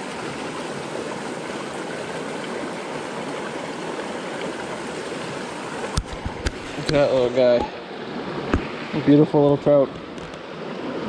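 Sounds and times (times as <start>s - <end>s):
brook flowing over stones: 0.0s - 11.0s.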